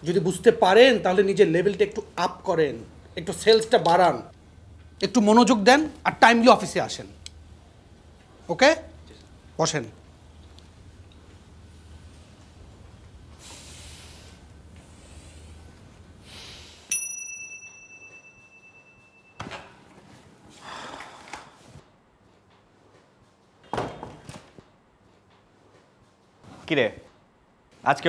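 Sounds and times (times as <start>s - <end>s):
bell-like ding: 16.9s - 19.8s.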